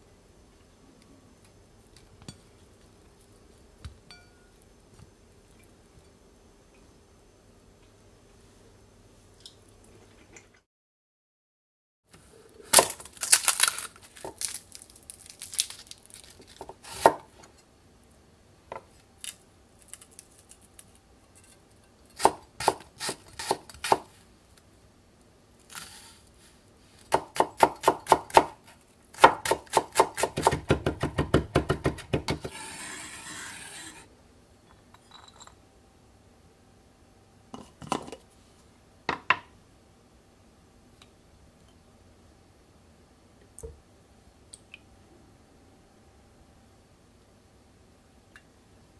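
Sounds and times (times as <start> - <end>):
knife chopping on wooden board: 29.2 - 32.6
knife scraping board: 32.4 - 34.1.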